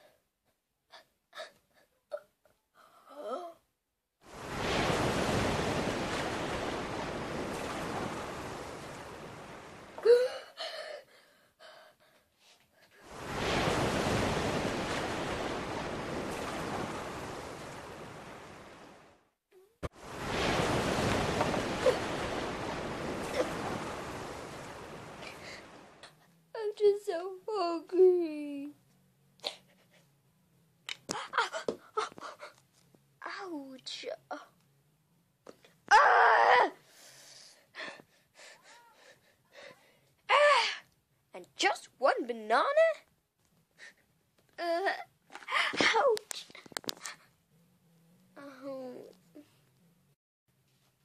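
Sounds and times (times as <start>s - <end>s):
hiss-like noise rushes: 19.9s - 26.0s.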